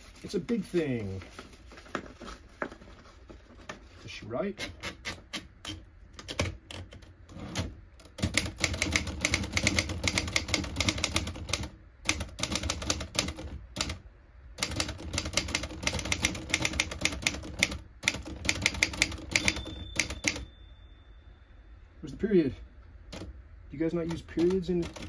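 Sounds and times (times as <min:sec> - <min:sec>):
manual typewriter keystrokes: 0:04.6 - 0:14.0, 0:14.6 - 0:20.5, 0:23.1 - 0:23.3, 0:23.9 - 0:25.0.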